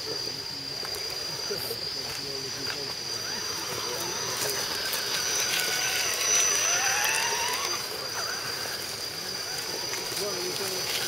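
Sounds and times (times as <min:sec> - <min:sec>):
toy truck motor whining: 0:03.1 - 0:11.0.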